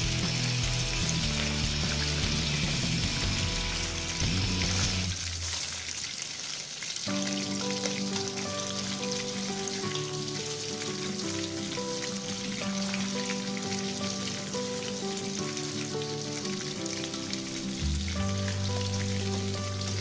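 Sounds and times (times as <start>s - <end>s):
background music: 0.0s - 5.2s, 7.1s - 20.0s
low bass line: 0.0s - 5.2s
oil sizzling around frying fish: 0.0s - 20.0s.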